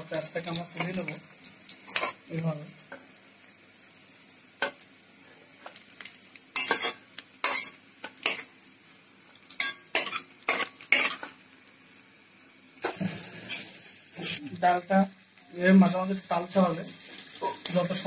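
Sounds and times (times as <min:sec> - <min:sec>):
faint oil sizzle: 0:00.0 - 0:18.0
spatula clinking on plate: 0:06.6 - 0:08.4
metal spatula scraping wok: 0:06.6 - 0:08.5, 0:12.8 - 0:14.4, 0:16.9 - 0:18.0.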